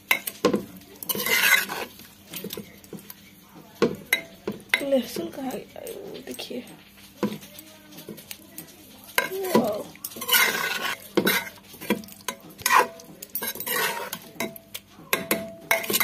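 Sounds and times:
metal ladle scraping a pot: 0:01.1 - 0:02.0, 0:09.2 - 0:14.5, 0:15.2 - 0:16.0.

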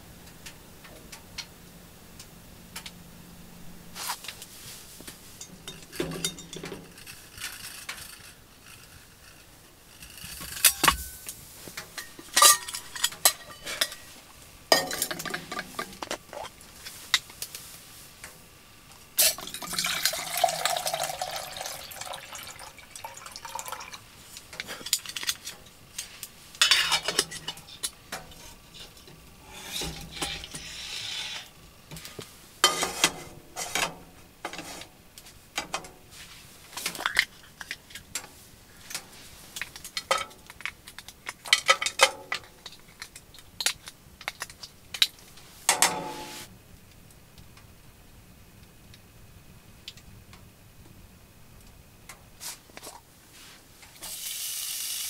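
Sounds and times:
metal pot and utensils clinking: 0:05.3 - 0:07.1, 0:10.5 - 0:14.1, 0:14.7 - 0:16.5, 0:26.6 - 0:31.4, 0:32.6 - 0:34.8, 0:39.8 - 0:42.8
water pouring into a pot: 0:19.2 - 0:24.1, 0:54.0 - 0:55.0.

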